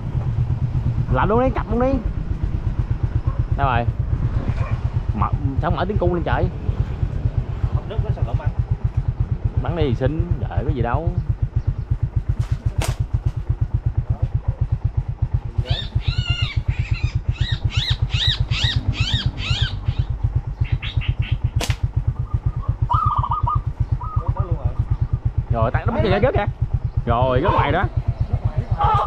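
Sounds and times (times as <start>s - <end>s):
bird chirping: 10.8s - 12.3s, 15.6s - 25.8s, 26.6s - 29.0s
small engine thumping: 11.3s - 14.6s
sharp clicks: 21.6s - 22.0s.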